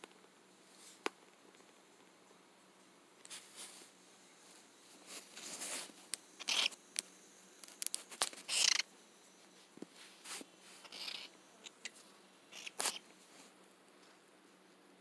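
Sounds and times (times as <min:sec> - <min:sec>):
cockatiel hissing: 0:06.4 - 0:06.8, 0:08.4 - 0:08.9, 0:10.3 - 0:11.4, 0:12.5 - 0:13.0.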